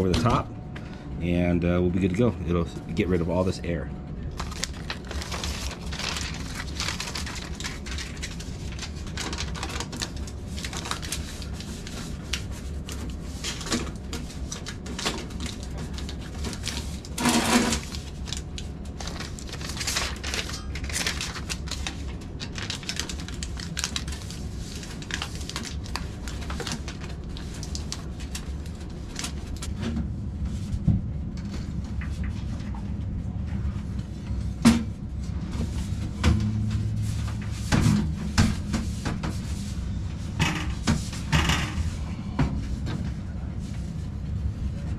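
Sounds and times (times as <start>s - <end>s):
constant low hum: 0.0s - 44.9s
foil tape crackling: 4.4s - 29.8s.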